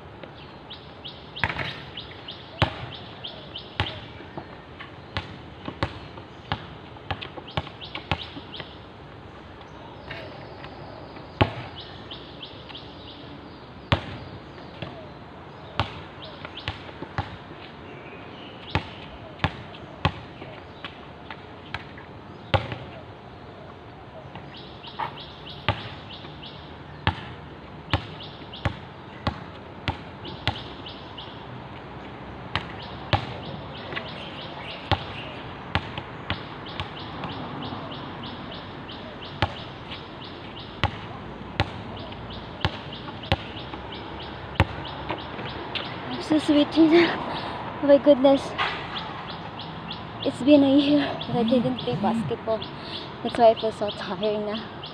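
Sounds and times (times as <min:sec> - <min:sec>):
basketball bouncing on hard court: 0:02.6 - 0:03.0, 0:05.2 - 0:08.5, 0:22.5 - 0:22.9, 0:27.0 - 0:30.7, 0:32.5 - 0:34.1, 0:34.8 - 0:37.5, 0:39.4 - 0:40.0, 0:40.8 - 0:45.9.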